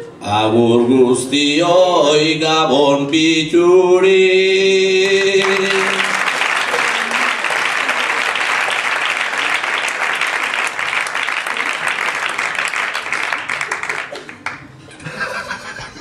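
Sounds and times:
audience applauding: 4.9 - 14.8.

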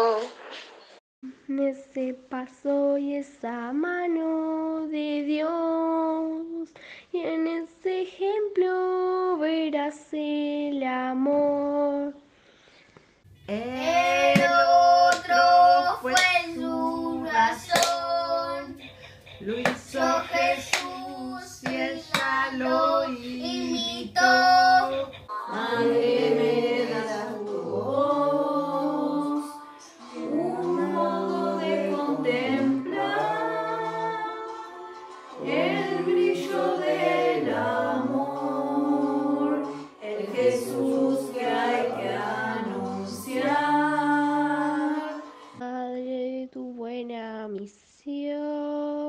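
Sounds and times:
children and women singing hymn: 13.5 - 45.6.

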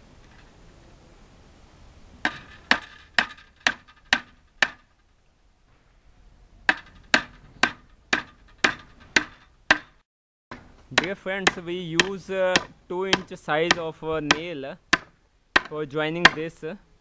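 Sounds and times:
hammer hitting nail into wood: 2.3 - 4.8, 6.7 - 16.5.

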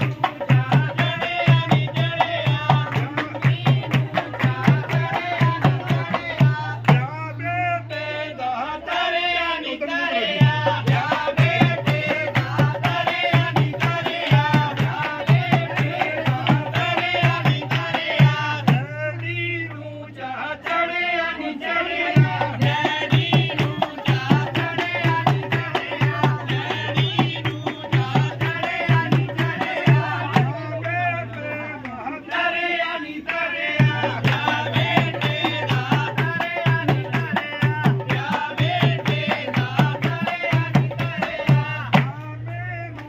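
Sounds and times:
hand drum beat: 0.0 - 7.2, 10.4 - 19.2, 22.2 - 30.8, 33.8 - 42.2
people singing: 0.0 - 43.0.

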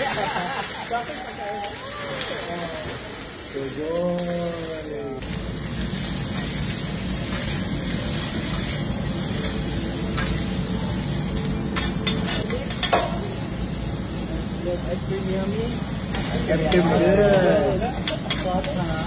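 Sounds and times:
food sizzling on griddle: 0.0 - 19.0
metal utensils clinking on griddle: 6.2 - 10.6, 11.4 - 13.4, 16.1 - 19.0.

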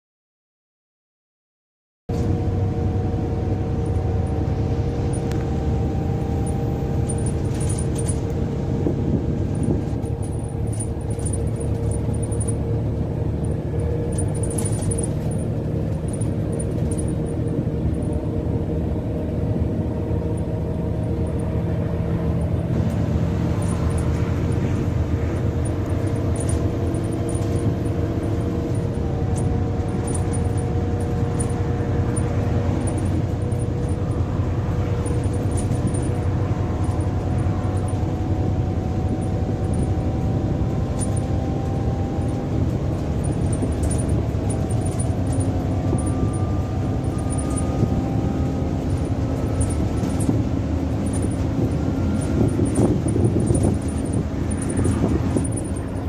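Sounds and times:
bus engine and road rumble: 2.1 - 56.0
constant whine: 2.1 - 56.0
higher whine drifting in pitch: 2.2 - 56.0
faint rattles: 6.3 - 18.2, 20.2 - 40.0, 40.6 - 56.0.

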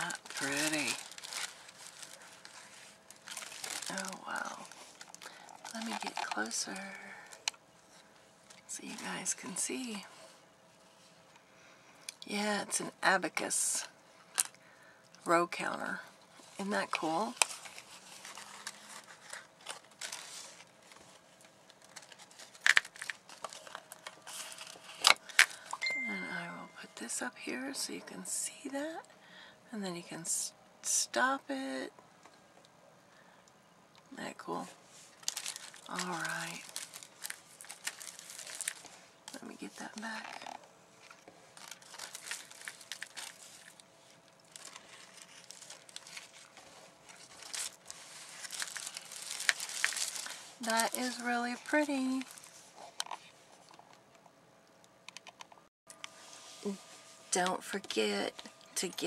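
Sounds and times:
sharp crackle: 0.0 - 7.5, 35.1 - 43.8, 44.4 - 52.5
paper and plastic crinkling: 0.0 - 9.9, 16.4 - 26.2, 34.4 - 53.9.

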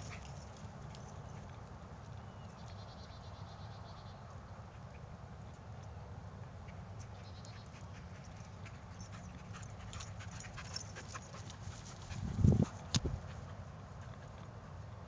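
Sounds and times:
dog panting: 7.6 - 14.8.

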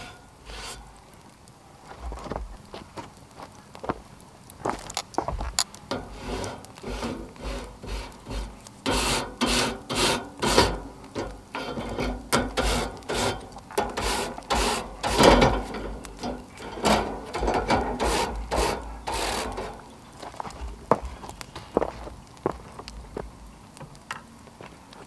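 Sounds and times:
grill brush scraping grates: 0.0 - 1.0, 5.9 - 21.7.

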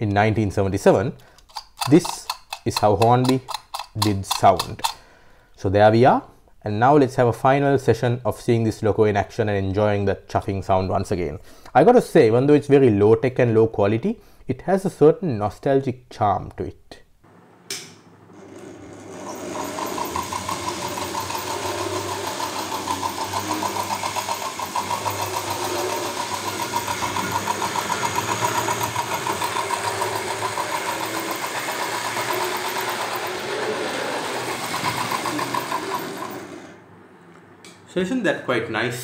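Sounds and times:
model steam locomotive chuffing clatter: 19.3 - 36.6.

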